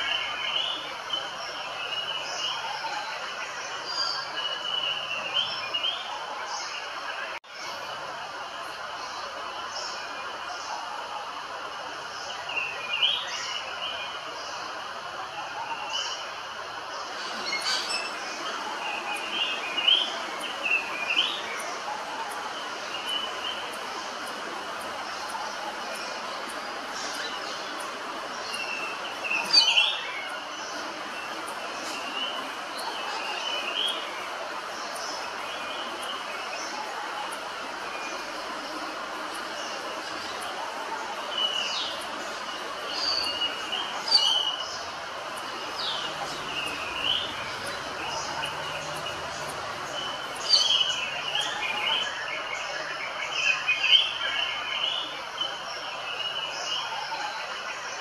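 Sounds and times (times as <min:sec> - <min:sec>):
background hiss: 0:00.0 - 0:58.0
myna whistling calls: 0:28.4 - 0:34.1, 0:38.0 - 0:55.6.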